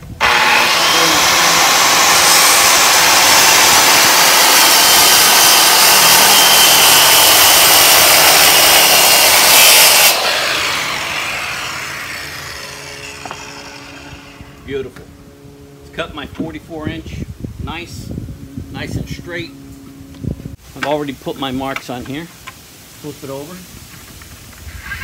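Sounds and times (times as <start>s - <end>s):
circular saw cutting plywood: 0.0s - 14.8s
saw blade spinning down: 0.2s - 14.7s.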